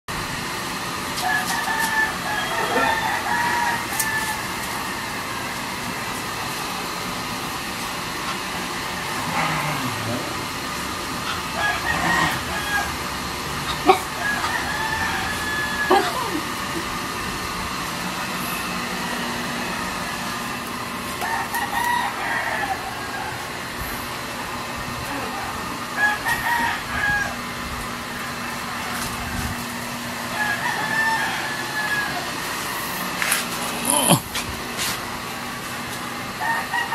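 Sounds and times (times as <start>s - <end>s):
steady background noise: 0.1s - 36.9s
rooster crowing: 1.2s - 5.6s, 11.2s - 16.8s, 21.1s - 23.8s, 25.8s - 27.6s, 28.8s - 32.8s, 36.3s - 36.9s
dog growling: 9.0s - 10.7s, 11.8s - 12.6s, 13.6s - 14.2s, 33.6s - 34.4s.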